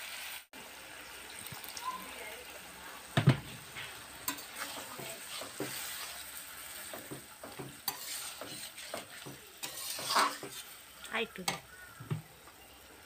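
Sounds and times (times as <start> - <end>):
curry sizzling: 0.0 - 13.0
metal spatula scraping a pan: 3.4 - 11.7.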